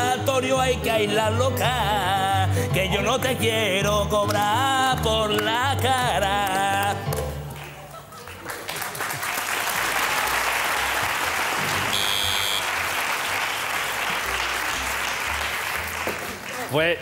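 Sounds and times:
audience applauding: 0:05.8 - 0:17.0
brief high beep: 0:11.9 - 0:12.7.

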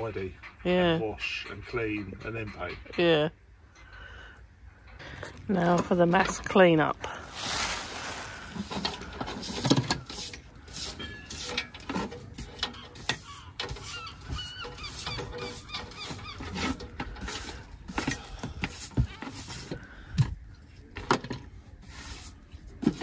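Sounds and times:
knocks and scrapes on wooden deck: 0:07.3 - 0:23.0
birds chirping: 0:12.3 - 0:17.6.

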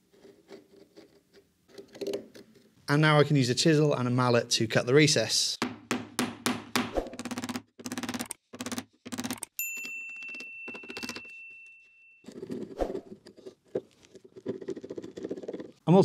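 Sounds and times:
high steady chime: 0:09.6 - 0:12.3
chisel cutting wood: 0:12.3 - 0:15.8.

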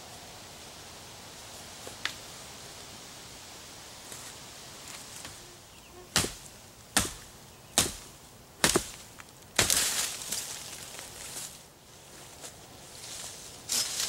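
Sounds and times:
hatchet chopping log: 0:06.1 - 0:09.9.

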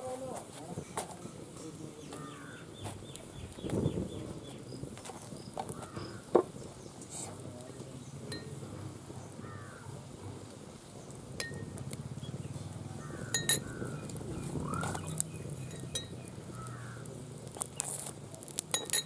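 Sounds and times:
cooking utensils clinking: 0:13.3 - 0:13.8.

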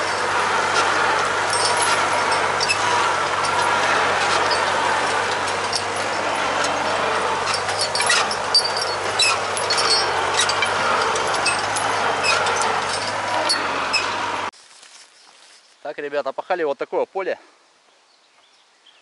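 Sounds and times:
sharp metallic clank: 0:00.0 - 0:14.4
plough rattling: 0:00.0 - 0:14.5
tractor diesel engine running: 0:00.0 - 0:14.5.

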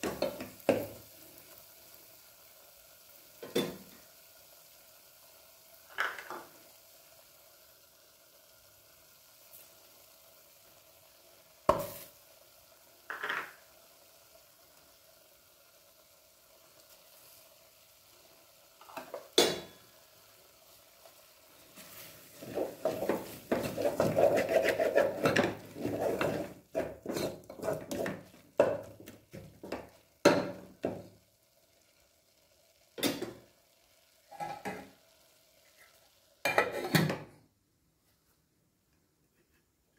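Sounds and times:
spoon scraping in a metal pot: 0:21.9 - 0:28.2.

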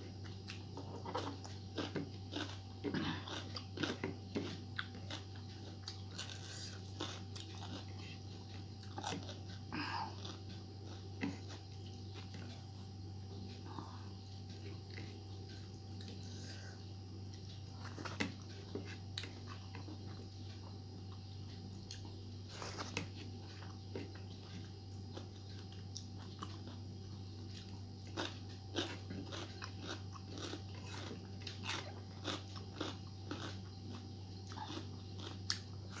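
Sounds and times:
low hum: 0:00.0 - 0:36.0
chewing and mouth clicks: 0:00.1 - 0:36.0
crisp cucumber bites: 0:27.5 - 0:36.0.

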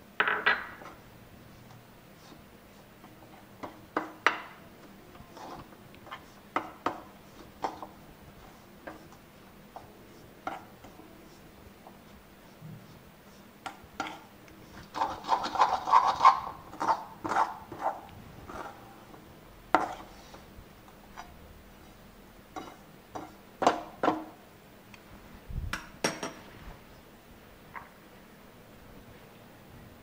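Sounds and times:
metal spoon scraping a pan: 0:05.1 - 0:09.8, 0:10.4 - 0:11.4, 0:13.6 - 0:18.9, 0:19.7 - 0:20.4, 0:22.5 - 0:23.4.

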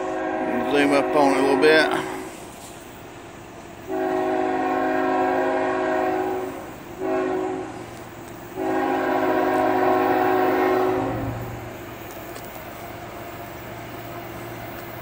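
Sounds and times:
locomotive air horn blasts: 0:00.0 - 0:02.5, 0:03.8 - 0:11.7.

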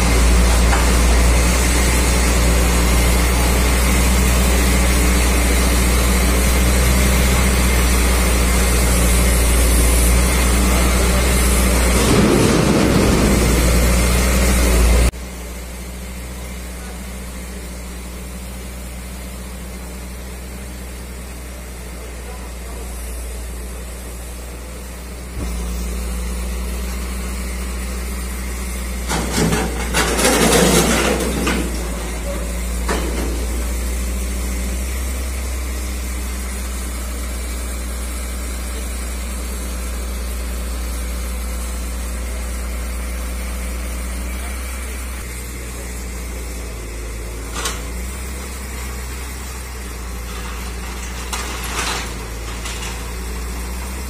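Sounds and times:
diesel engine running: 0:00.0 - 0:54.0
metal clattering crash: 0:10.0 - 0:15.1, 0:29.0 - 0:34.3, 0:50.0 - 0:54.0
metal clanks: 0:29.0 - 0:34.0, 0:50.2 - 0:54.0.

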